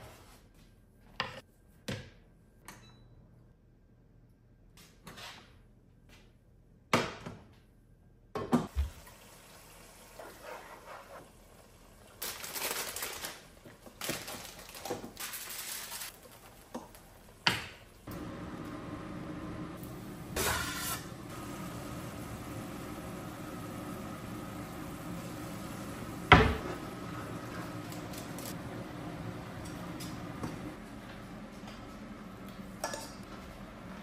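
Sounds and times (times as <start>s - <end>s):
hissing from boiling pot: 18.2s - 29.4s.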